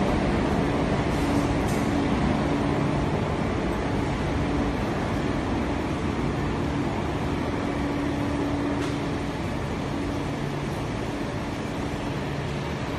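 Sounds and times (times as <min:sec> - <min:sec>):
machinery hum and rush: 0:00.0 - 0:12.9.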